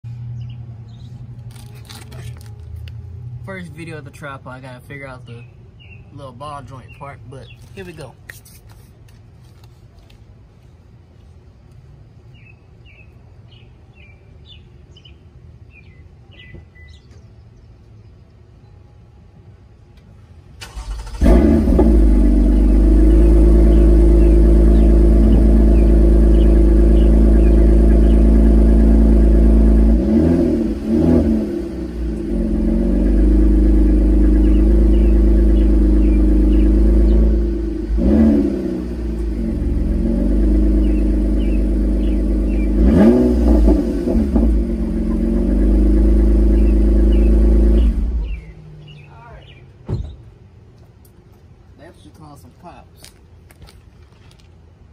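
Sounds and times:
engine revving: 20.6s - 48.9s
car engine running: 20.7s - 49.6s.

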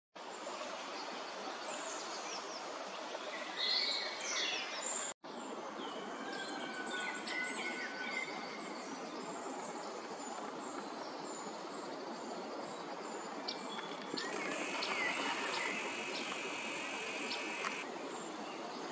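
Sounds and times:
bird chirps and calls: 14.2s - 17.8s
duck flapping wings on water: 14.2s - 17.8s
background hiss: 14.2s - 18.4s.

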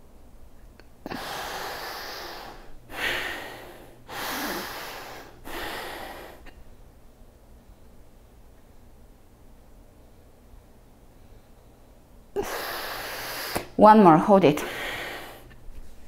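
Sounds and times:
woman breathing forcefully: 1.0s - 6.6s, 12.4s - 13.8s, 14.6s - 15.6s.

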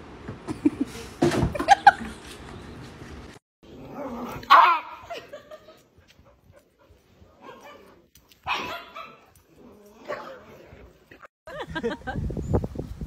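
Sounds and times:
dog barking and yipping: 4.3s - 5.1s, 7.4s - 9.4s.

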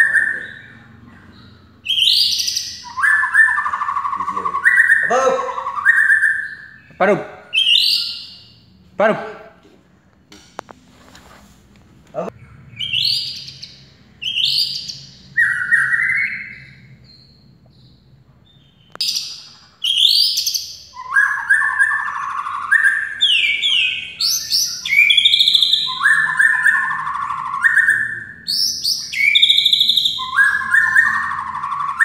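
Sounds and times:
bird singing whistled phrases: 1.8s - 8.6s, 14.2s - 16.9s, 18.6s - 32.0s.

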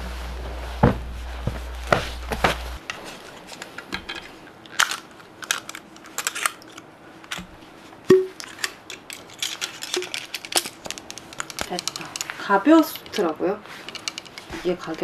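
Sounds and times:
low hum: 0.0s - 2.8s
clicks taps and rustles of handling: 8.2s - 15.0s.

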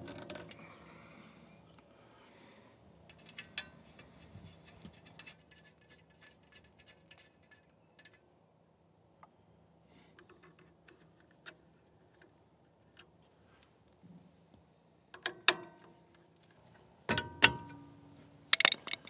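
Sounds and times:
faint clicks and metal ticks: 3.0s - 8.3s, 15.1s - 17.9s.

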